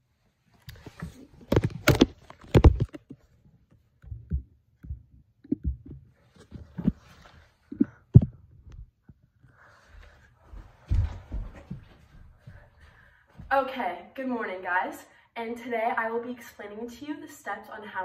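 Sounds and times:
phone handling bumps and rubbing: 0:01.4 - 0:03.3.

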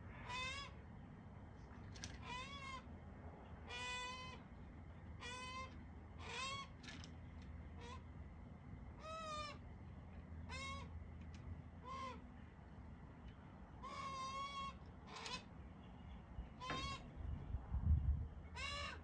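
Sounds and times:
magpie whining calls: 0:00.2 - 0:00.8, 0:02.2 - 0:02.9, 0:03.7 - 0:04.4, 0:05.2 - 0:06.8, 0:10.4 - 0:10.9, 0:11.8 - 0:12.3, 0:13.8 - 0:15.5, 0:16.6 - 0:17.1, 0:18.5 - 0:19.0.

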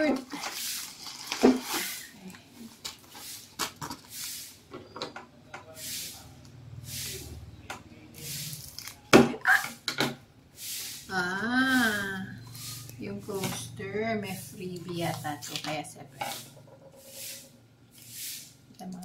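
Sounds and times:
plastic wrap rustling and crinkling: 0:00.0 - 0:04.7, 0:10.7 - 0:19.0.

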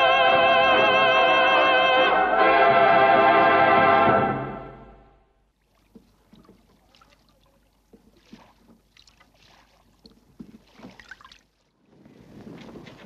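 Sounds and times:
oars splashing: 0:05.5 - 0:13.0.

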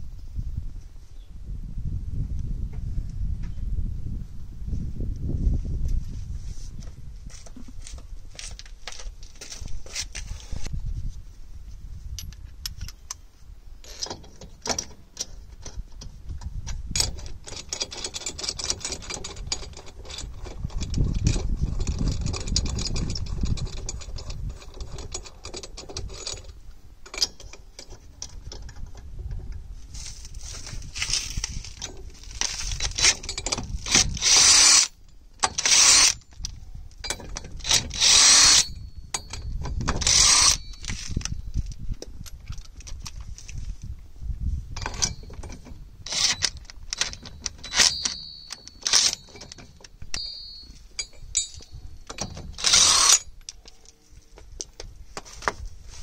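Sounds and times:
nuts scraping while threaded: 0:13.8 - 0:28.9, 0:30.0 - 0:41.8, 0:44.8 - 0:54.2
metal clicks of lug nuts: 0:13.8 - 0:29.1, 0:44.8 - 0:54.0
cordless power tool spinning nuts: 0:32.5 - 0:36.2, 0:37.6 - 0:38.8, 0:39.9 - 0:41.3, 0:46.1 - 0:49.6, 0:50.2 - 0:53.2.

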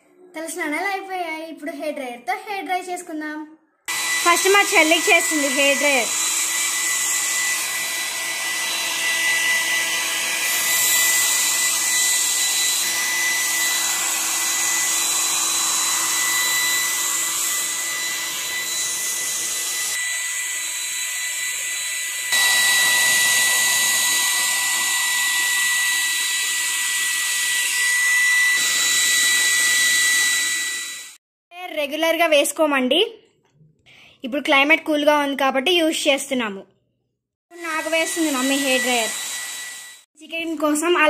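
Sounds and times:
hair dryer blowing: 0:03.9 - 0:31.2, 0:37.5 - 0:40.1.

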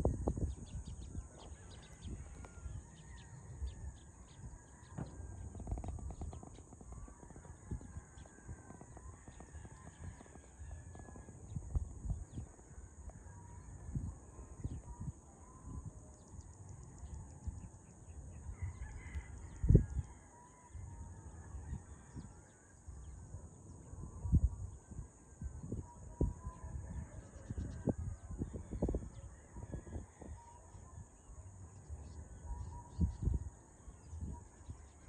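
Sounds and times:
wind thumps on microphone: 0:00.0 - 0:16.0, 0:24.1 - 0:30.4
roosters crowing: 0:18.3 - 0:22.5.

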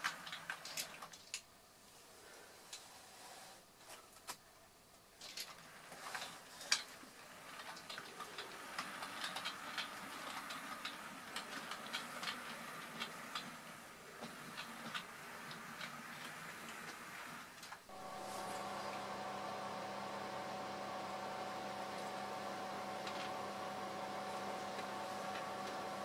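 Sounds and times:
model train wheels clicking: 0:05.2 - 0:17.9
model train rolling noise: 0:05.3 - 0:26.0.

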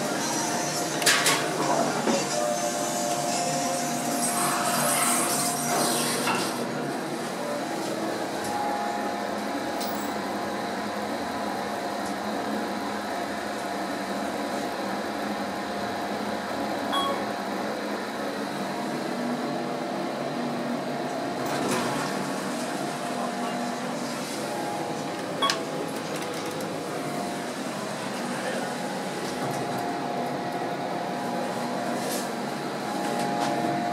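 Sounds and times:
elevator humming: 0:00.0 - 0:33.9
elevator doors opening: 0:21.4 - 0:30.6.

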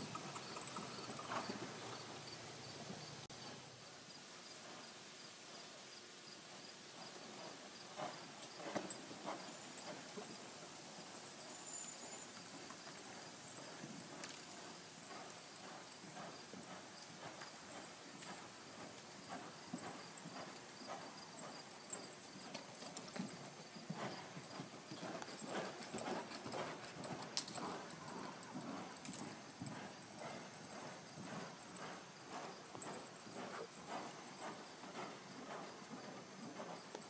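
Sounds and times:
hoofbeats on soft dirt: 0:00.0 - 0:03.6, 0:04.5 - 0:04.9, 0:06.3 - 0:37.0.

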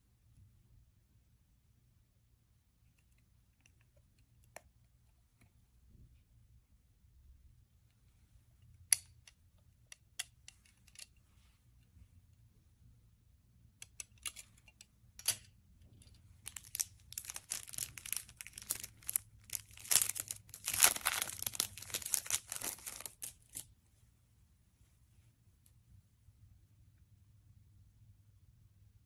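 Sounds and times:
plastic bag crinkling: 0:16.4 - 0:23.6.

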